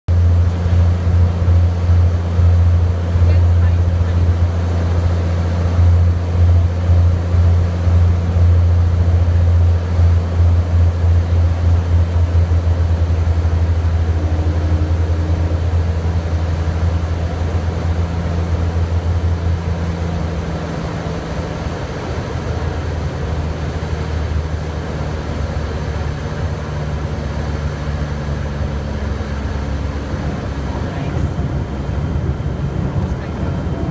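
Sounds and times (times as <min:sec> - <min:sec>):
plane engine drone in cabin: 0:00.1 - 0:33.9.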